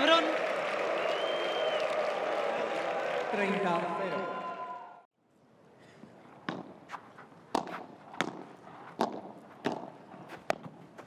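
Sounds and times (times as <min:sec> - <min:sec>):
paddle striking ball: 0:07.5 - 0:10.8.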